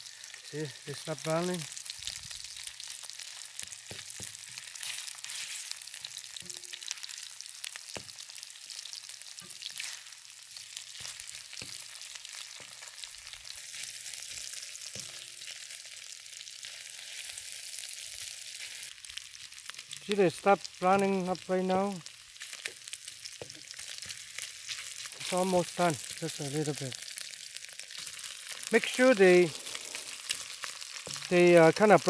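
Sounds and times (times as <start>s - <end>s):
meat sizzling in hot oil: 0.0s - 32.0s
spatula scraping pan: 3.9s - 5.8s.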